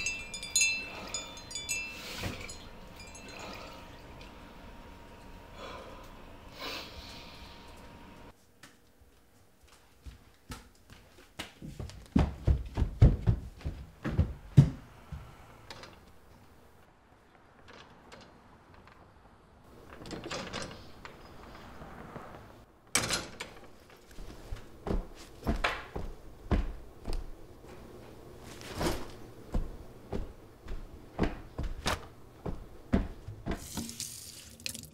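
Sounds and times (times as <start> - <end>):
heavy footsteps: 9.7 - 15.5, 24.2 - 33.8
knocks and thumps: 11.7 - 15.3, 24.8 - 27.3.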